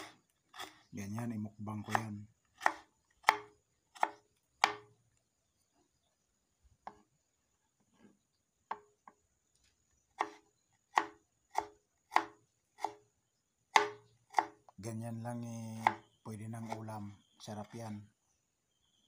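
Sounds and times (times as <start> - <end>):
knife chopping on wooden board: 0.0 - 0.8, 1.8 - 4.9, 10.2 - 13.0, 13.7 - 14.6, 15.7 - 16.9.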